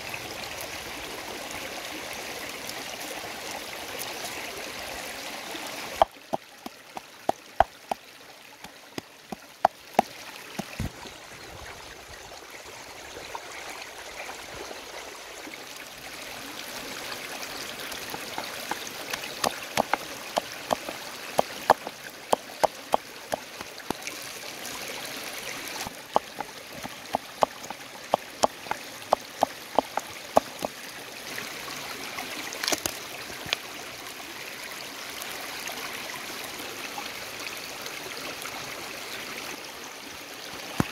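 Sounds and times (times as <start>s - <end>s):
stream babbling: 0.0s - 40.9s
wooden pestle pounding in mortar: 18.3s - 21.9s, 29.4s - 30.7s.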